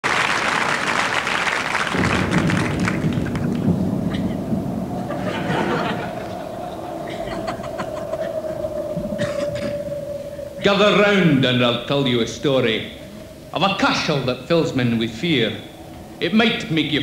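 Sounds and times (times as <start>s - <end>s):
audience applauding: 0.0s - 4.4s
steady held tone: 2.2s - 17.0s
audience laughing: 3.0s - 8.7s.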